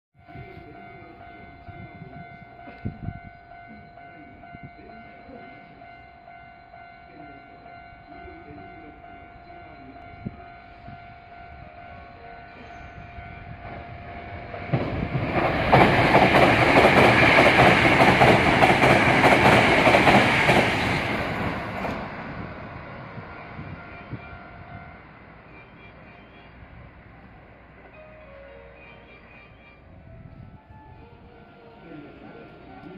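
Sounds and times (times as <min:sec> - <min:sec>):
steady ringing tones: 0:00.2 - 0:20.0
train wheels rushing past: 0:12.8 - 0:23.9.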